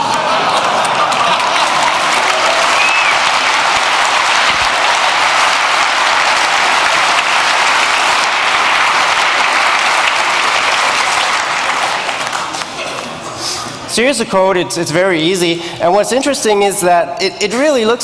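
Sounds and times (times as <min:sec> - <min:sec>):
audience applauding: 0:00.0 - 0:13.2.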